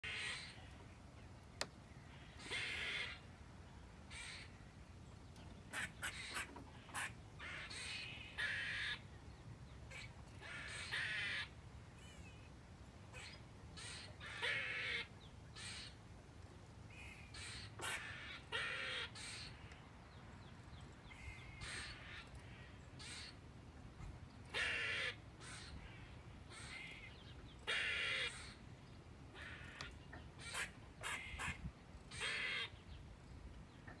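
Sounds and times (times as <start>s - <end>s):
squirrel alarm calls: 0.0s - 0.7s, 2.1s - 3.3s, 4.1s - 4.6s, 5.7s - 9.1s, 9.9s - 12.4s, 13.1s - 16.0s, 16.9s - 19.8s, 21.0s - 23.4s, 24.5s - 28.6s, 29.3s - 33.1s.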